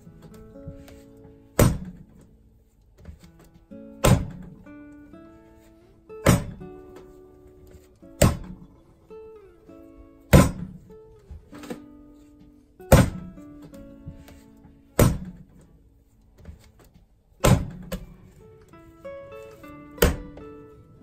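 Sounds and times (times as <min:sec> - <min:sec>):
acoustic guitar music: 0:00.0 - 0:21.0
dough slapped on worktop: 0:01.6 - 0:02.0, 0:15.0 - 0:15.4.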